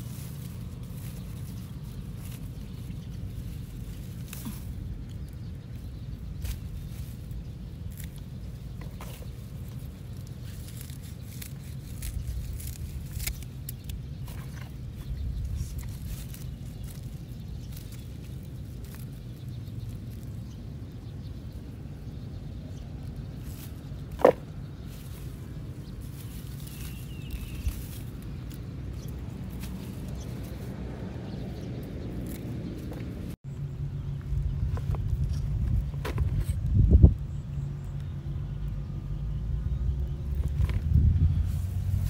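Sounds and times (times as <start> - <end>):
stalks rustling and snipped: 0.0 - 21.0, 22.8 - 33.4, 40.2 - 42.0
low steady rumble: 0.0 - 42.0.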